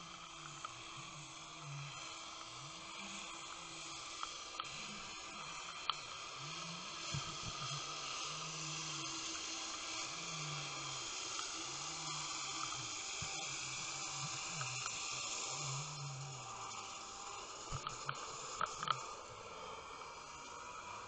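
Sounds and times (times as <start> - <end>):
underwater hiss: 0.0 - 21.0
faint clicks: 4.1 - 6.2, 16.7 - 19.1.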